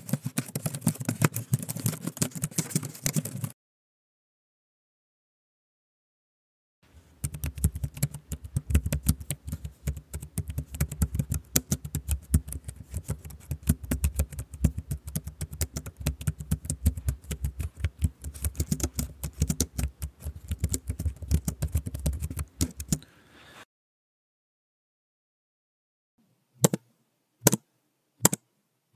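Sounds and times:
fast typing on keyboard: 0.0s - 3.5s, 7.2s - 23.0s.

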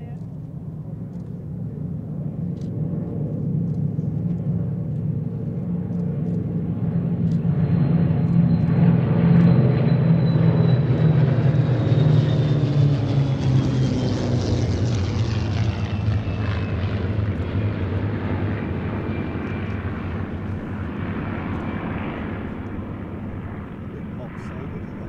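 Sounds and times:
high engine whine: 0.0s - 25.0s
propeller planes droning past: 0.0s - 25.0s.

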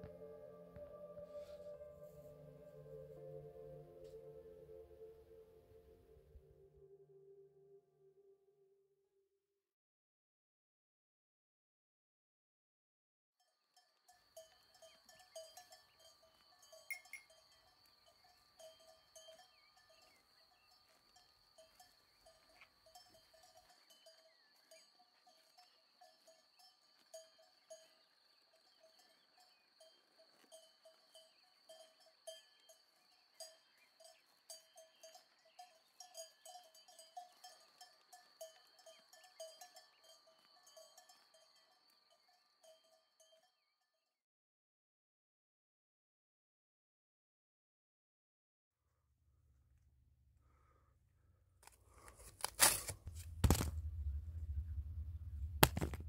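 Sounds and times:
faint cowbells clanking: 13.4s - 43.7s.

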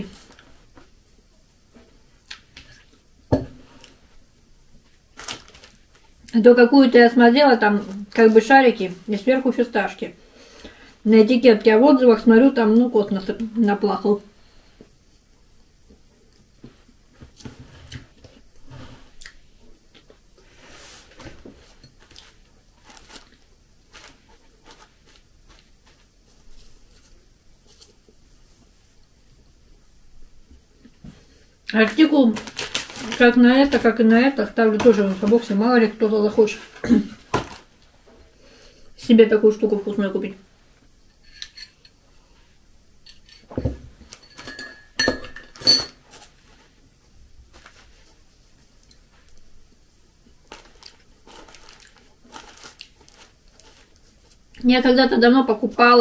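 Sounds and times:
plastic bag crinkling: 5.1s - 6.2s, 22.0s - 26.1s, 31.8s - 37.7s, 50.4s - 54.4s
tableware clinking: 41.2s - 42.0s, 44.1s - 46.0s.

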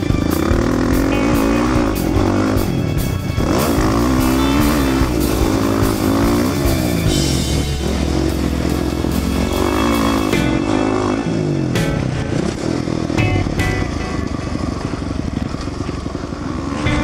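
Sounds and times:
background music: 0.0s - 15.3s, 16.4s - 17.0s
dirt bike engine revving: 0.0s - 17.0s.

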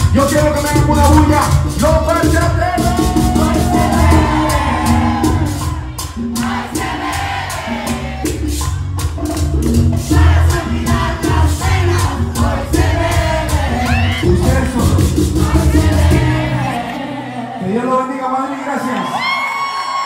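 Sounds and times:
shaken percussion: 0.0s - 16.5s
live band playing: 0.0s - 18.0s
men singing: 2.8s - 8.5s, 9.9s - 17.7s.

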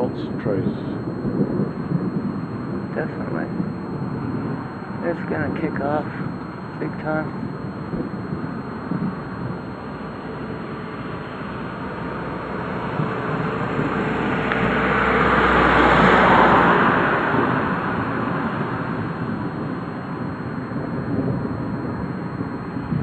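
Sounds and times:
car passing by: 13.7s - 18.7s.

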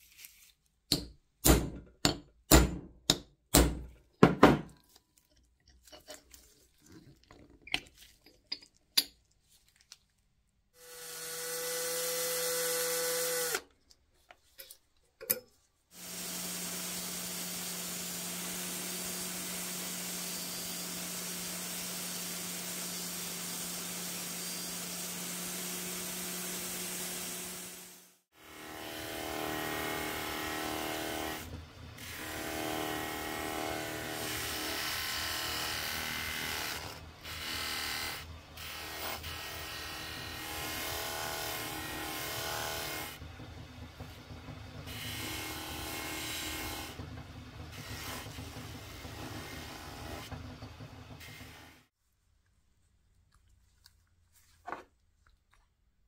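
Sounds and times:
angle grinder running: 10.8s - 13.6s, 16.0s - 36.5s
polishing wheel spinning: 16.0s - 28.2s.

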